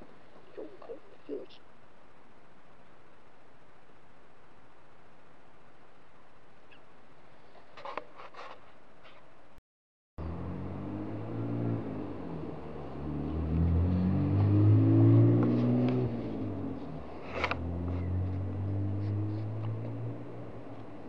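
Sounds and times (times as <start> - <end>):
vehicle engine passing by: 10.2 - 21.0.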